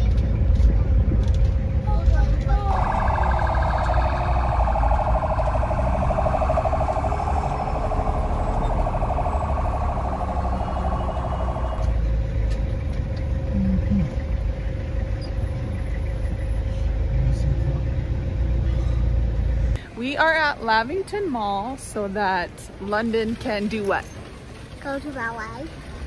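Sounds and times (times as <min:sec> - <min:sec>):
vehicle engine and road rumble: 0:00.0 - 0:26.0
pulsing electronic alarm buzz: 0:02.7 - 0:12.3.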